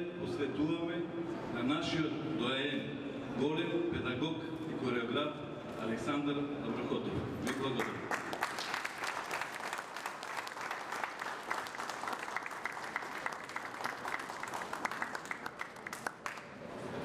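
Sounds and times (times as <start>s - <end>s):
audience clapping: 7.5s - 16.7s.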